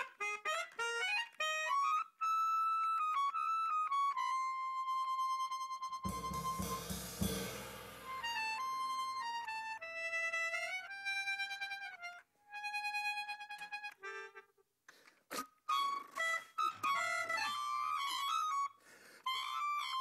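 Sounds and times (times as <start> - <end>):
slow reedy melody: 0.0 - 14.6.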